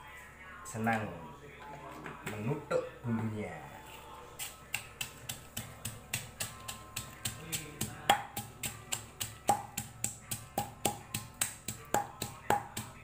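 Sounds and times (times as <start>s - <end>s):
pestle pounding in stone mortar: 5.0s - 13.0s.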